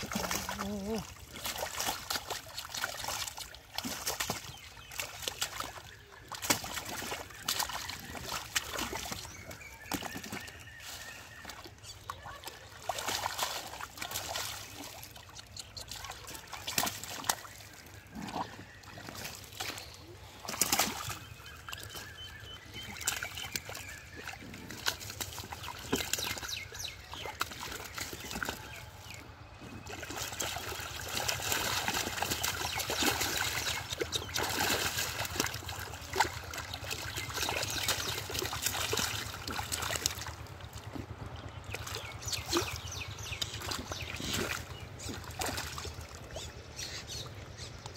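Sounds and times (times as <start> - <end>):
splashing in muddy water: 0.0 - 47.9.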